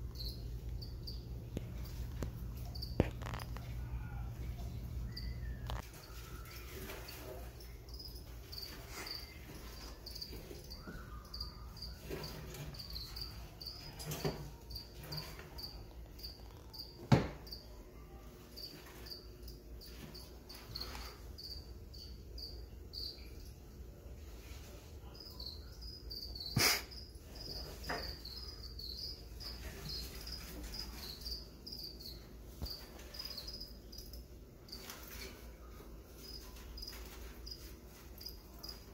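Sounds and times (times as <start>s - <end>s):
low steady hum: 0.0s - 26.2s
crickets chirping: 0.1s - 2.0s, 2.6s - 3.4s, 5.0s - 17.7s, 18.5s - 23.6s, 25.0s - 35.2s, 36.2s - 38.9s.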